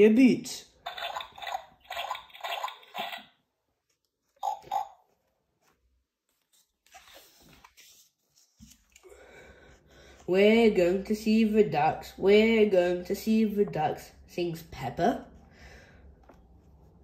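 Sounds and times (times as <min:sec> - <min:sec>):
paper rustling: 0:03.8 - 0:09.0, 0:16.2 - 0:17.0.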